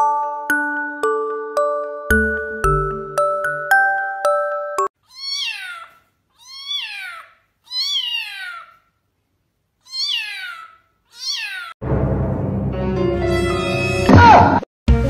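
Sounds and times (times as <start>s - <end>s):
chiming music: 0.0s - 4.9s
kitten meowing: 5.1s - 8.8s, 9.8s - 11.8s.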